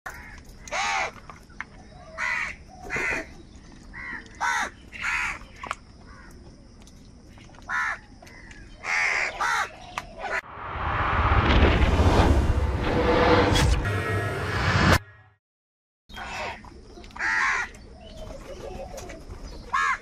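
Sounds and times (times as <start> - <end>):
crows cawing: 0.1 - 1.2, 2.1 - 3.3, 3.9 - 6.4, 7.7 - 10.4, 16.1 - 16.6, 17.2 - 17.8, 19.7 - 20.0.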